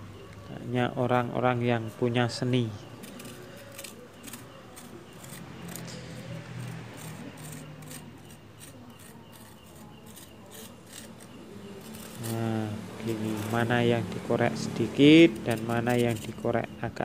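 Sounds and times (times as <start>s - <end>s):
putty knife scraping plaster: 2.9s - 13.7s, 15.2s - 16.5s.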